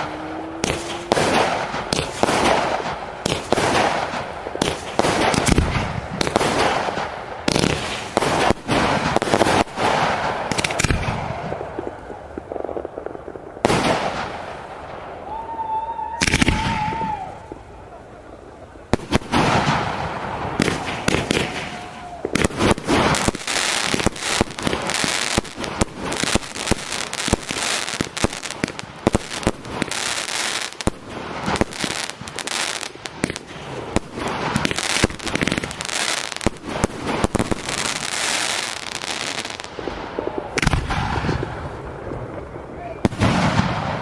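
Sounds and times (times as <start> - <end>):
firework bang: 0.0 - 11.8, 16.2 - 17.2, 36.4 - 41.7, 43.0 - 44.0
firework bursts and crackling: 0.0 - 44.0.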